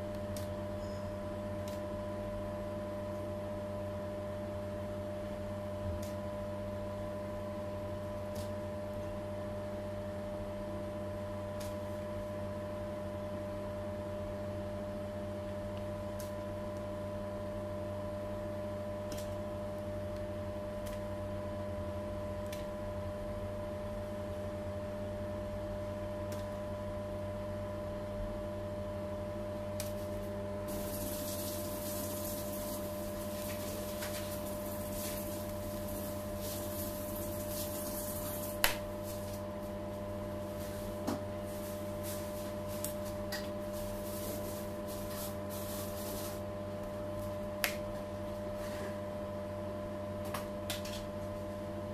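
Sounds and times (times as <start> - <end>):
electrical hum: 0.0 - 51.9
rustling scraping hiss: 30.7 - 39.4, 40.4 - 46.5.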